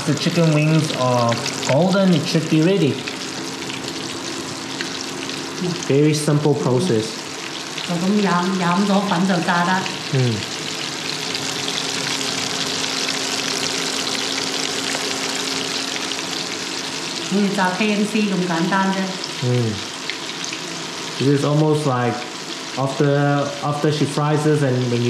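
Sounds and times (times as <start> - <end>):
chicken wings deep-frying in oil: 0.0 - 25.0.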